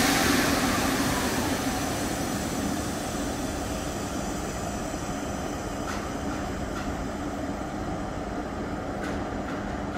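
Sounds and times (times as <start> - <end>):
air compressor droning: 0.0 - 5.6.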